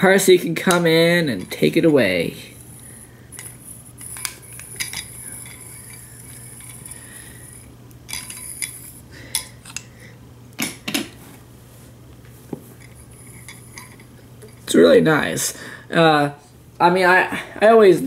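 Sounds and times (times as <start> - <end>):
toy train cars clicking on marble: 3.4 - 7.1, 8.1 - 9.8.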